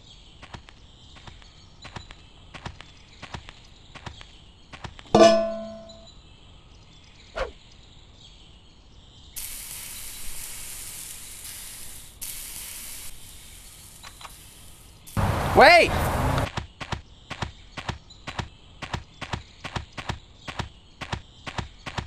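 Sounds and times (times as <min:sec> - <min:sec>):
frying pan clanging on grate: 0:05.2 - 0:06.0
steady hiss: 0:09.4 - 0:16.5.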